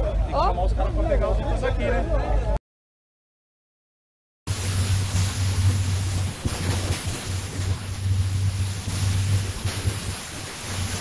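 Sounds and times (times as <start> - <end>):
water rushing: 4.5 - 11.0
wind rumble on microphone: 4.5 - 11.0.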